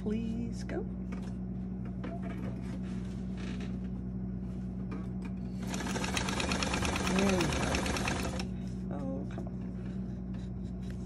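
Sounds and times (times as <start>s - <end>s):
sewing machine stitching: 5.6s - 8.5s.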